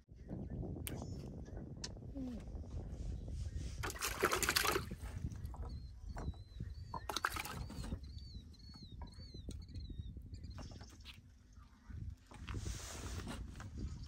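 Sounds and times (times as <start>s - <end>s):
fish splashing in water: 3.8s - 5.0s, 6.9s - 8.0s.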